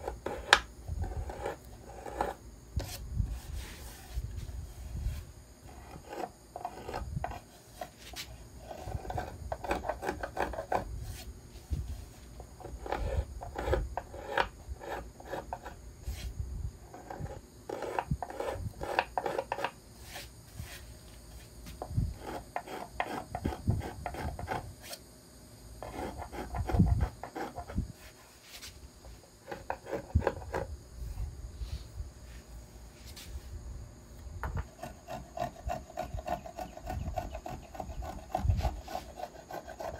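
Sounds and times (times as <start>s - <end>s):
finger plane shaving wood: 0.0s - 3.0s, 5.7s - 7.0s, 8.6s - 10.9s, 12.7s - 15.8s, 17.0s - 19.7s, 22.2s - 25.0s, 25.8s - 27.8s, 29.4s - 30.7s, 34.6s - 39.9s.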